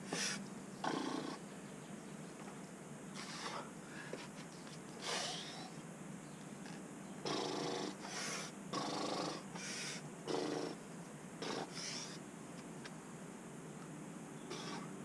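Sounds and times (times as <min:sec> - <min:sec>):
heavy breathing under strain: 0:03.2 - 0:04.3
hissing intakes of breath: 0:08.0 - 0:08.5, 0:09.6 - 0:10.0.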